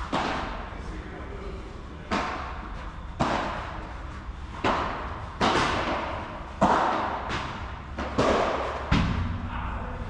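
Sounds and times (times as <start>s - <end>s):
padel ball struck by rackets: 4.6s - 9.3s.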